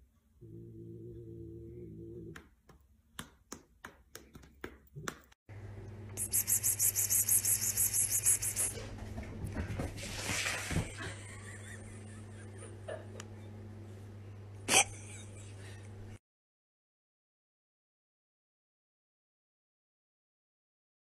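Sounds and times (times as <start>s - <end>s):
low room hum: 0.0s - 3.4s, 4.0s - 16.2s
person calling a cat pspsps: 6.2s - 8.7s.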